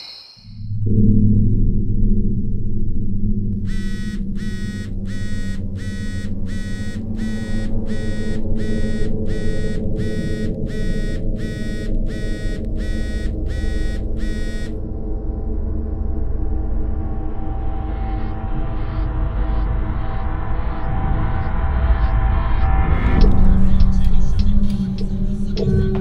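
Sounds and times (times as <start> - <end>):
phone buzzing tone: 3.6 - 14.8.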